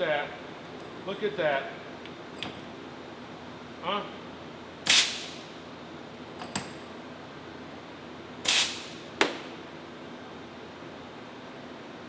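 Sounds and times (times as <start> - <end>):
compressed air blasts: 4.8 - 5.5, 8.4 - 9.5.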